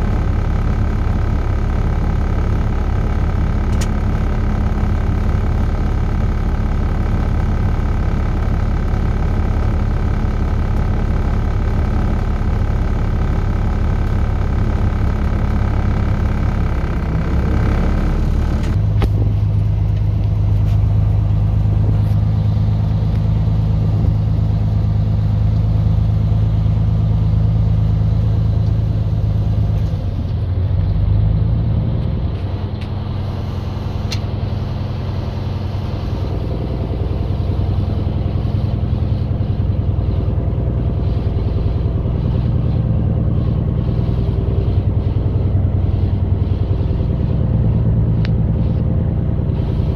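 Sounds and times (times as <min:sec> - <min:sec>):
higher hum: 0:00.0 - 0:30.5
diesel truck engine running: 0:00.0 - 0:49.9
click: 0:03.7 - 0:03.9, 0:34.1 - 0:34.3.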